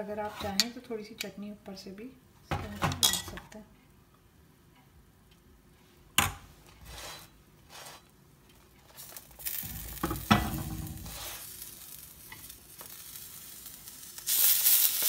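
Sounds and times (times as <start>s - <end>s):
bun sizzling on hot iron: 6.8s - 15.0s.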